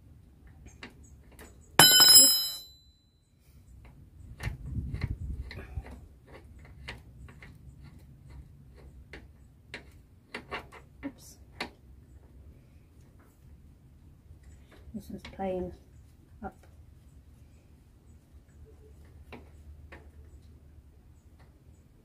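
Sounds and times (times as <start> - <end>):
sharp metallic ring: 1.8 - 3.1.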